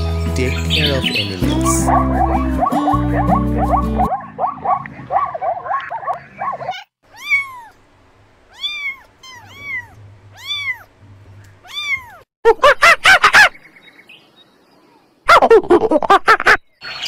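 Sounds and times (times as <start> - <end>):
rapid chirping calls: 0.5 - 6.9
cat meowing: 6.7 - 7.8, 8.5 - 10.9, 11.6 - 12.3.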